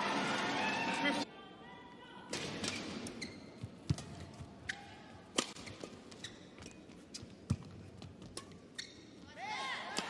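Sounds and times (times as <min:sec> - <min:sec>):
shoes squeaking on court: 0:02.7 - 0:04.9, 0:05.5 - 0:09.3
racket striking shuttlecock: 0:05.3 - 0:06.0.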